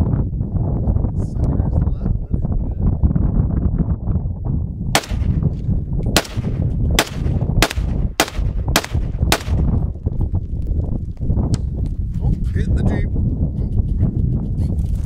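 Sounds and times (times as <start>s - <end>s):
rifle shots with echo: 5.0s - 9.8s.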